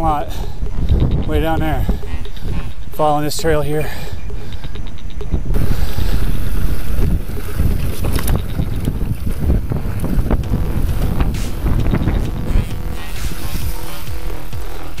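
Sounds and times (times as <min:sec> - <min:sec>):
bike tyres rumbling on trail: 0:00.0 - 0:15.0
wind buffeting microphone: 0:00.0 - 0:15.0
bike knocking and rattling on stones: 0:07.0 - 0:10.5.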